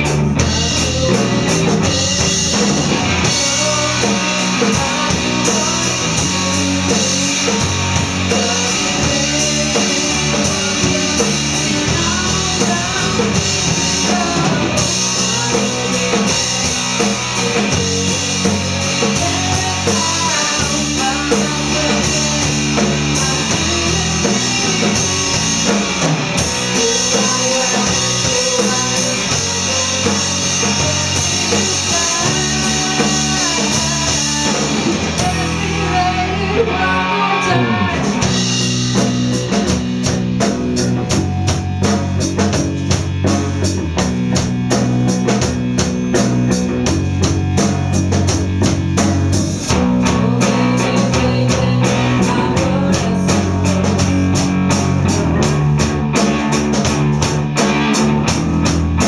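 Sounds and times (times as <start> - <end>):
rock band playing: 0.0 - 59.0
woman singing: 0.4 - 26.0, 26.6 - 38.1, 49.7 - 54.4.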